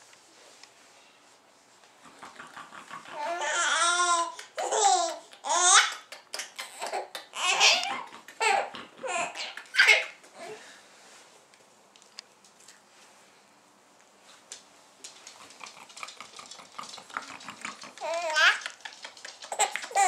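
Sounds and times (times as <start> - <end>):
infant laughing: 3.0 - 10.5, 17.9 - 20.0.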